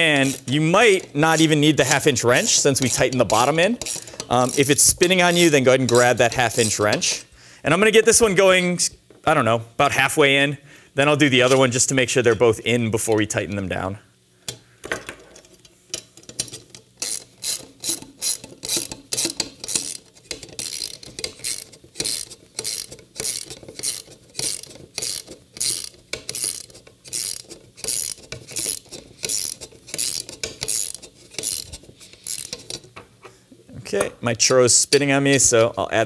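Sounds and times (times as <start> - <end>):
socket ratchet clicking: 0.0 - 6.8, 15.9 - 33.0.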